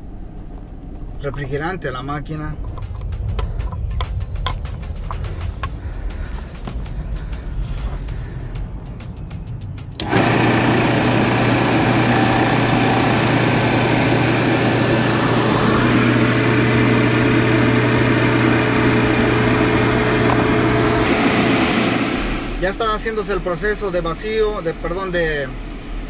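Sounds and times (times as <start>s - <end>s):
recovery machine motor humming: 9.9s - 26.0s.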